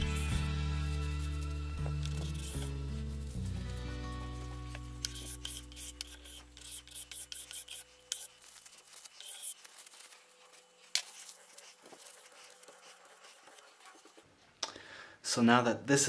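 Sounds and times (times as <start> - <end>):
paper towel rubbing: 0.0 - 14.4
plastic ruler scraping glue: 1.0 - 3.3, 4.8 - 14.3.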